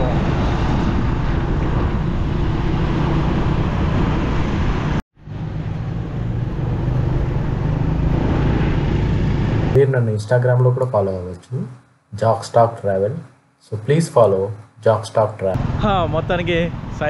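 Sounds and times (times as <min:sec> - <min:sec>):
road noise: 0:00.0 - 0:17.0.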